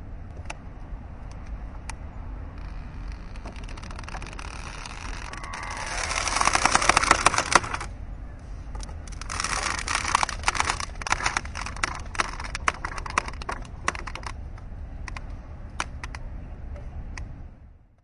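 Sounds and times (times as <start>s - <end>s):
steady low rumble: 0.0s - 18.0s
mooring rope creaking: 2.3s - 7.9s, 8.7s - 14.4s.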